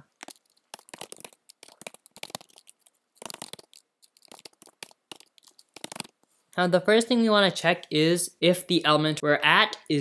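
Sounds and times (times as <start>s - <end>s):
typing on computer keyboard: 0.2s - 6.1s.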